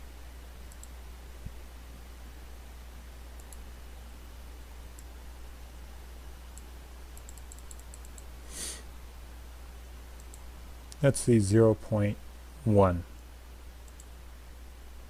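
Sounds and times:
low electrical hum: 0.0s - 15.0s
computer mouse clicks: 0.7s - 1.0s, 3.4s - 3.7s, 6.5s - 8.3s, 10.2s - 11.1s, 13.2s - 14.2s
short breathy hiss: 8.4s - 8.9s.

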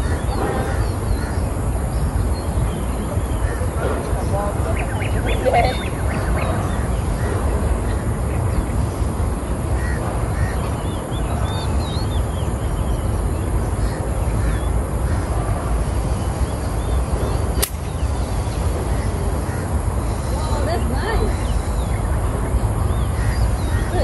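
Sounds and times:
birds calling: 0.0s - 24.0s
golf club striking ball: 17.6s - 18.0s.

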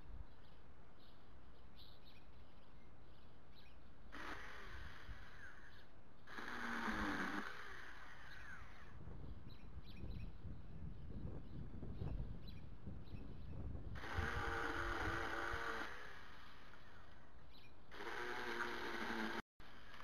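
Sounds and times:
electric chainsaw running: 4.1s - 5.7s, 6.3s - 9.0s, 14.0s - 16.8s, 17.9s - 19.4s.

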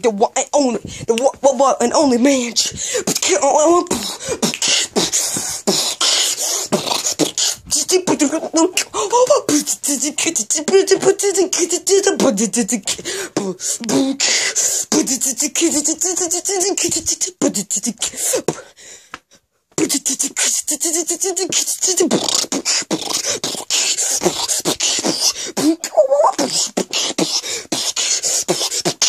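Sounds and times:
boy beatboxing: 0.0s - 18.8s, 19.8s - 29.0s.

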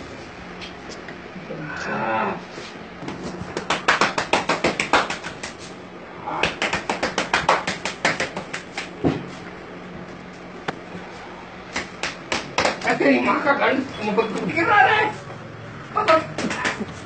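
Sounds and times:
hands slapping a head: 3.1s - 5.7s, 6.4s - 9.3s, 11.7s - 12.9s, 16.1s - 17.0s.

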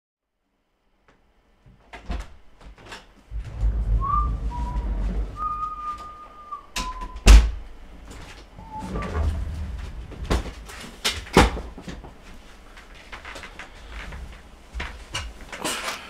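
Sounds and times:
handling knocks and rumble: 3.2s - 6.2s, 6.8s - 15.7s
man whistling: 3.8s - 7.3s.

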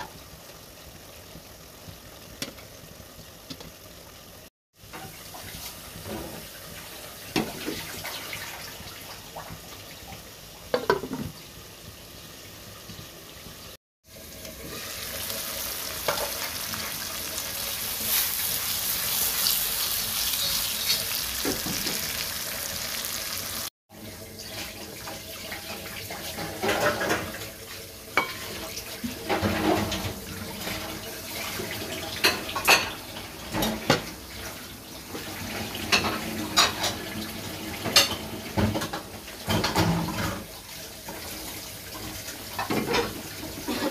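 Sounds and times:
fish frying sizzle: 0.0s - 43.9s.

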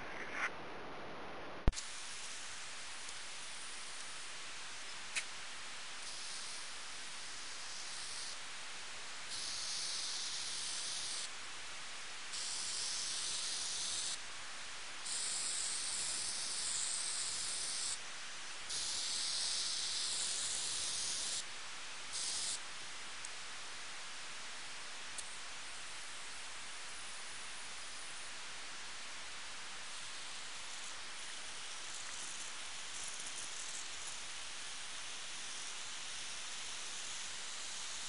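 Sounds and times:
steady background hiss: 0.0s - 38.0s
aerosol can spraying: 6.0s - 6.7s, 7.4s - 8.4s, 9.3s - 11.3s, 12.3s - 14.2s, 15.0s - 18.0s, 18.7s - 21.5s, 22.1s - 22.6s.

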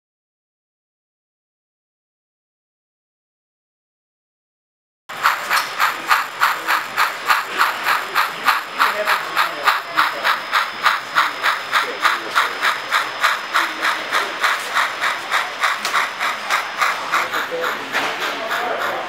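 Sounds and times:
model steam locomotive chuffing: 5.1s - 19.0s.

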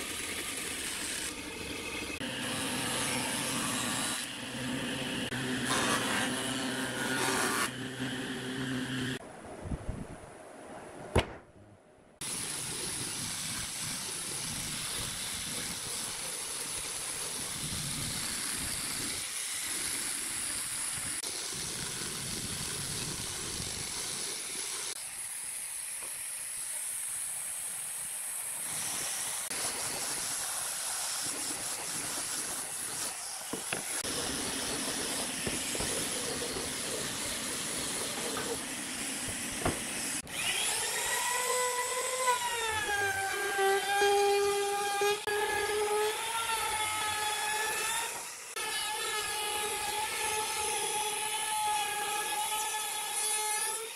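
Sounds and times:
angle grinder sanding wood: 0.0s - 9.2s, 12.2s - 27.0s, 28.5s - 53.9s
jointer machine hum: 0.0s - 9.2s.

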